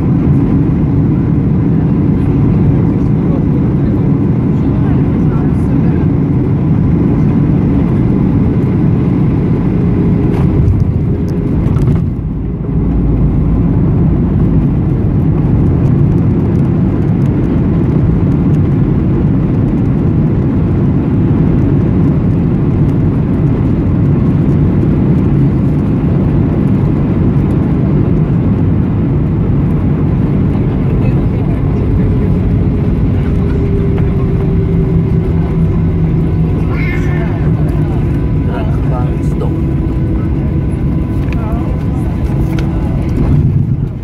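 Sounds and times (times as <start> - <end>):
jet engine and airflow roar: 0.0 - 44.0
low rumble rolling on runway: 0.0 - 44.0.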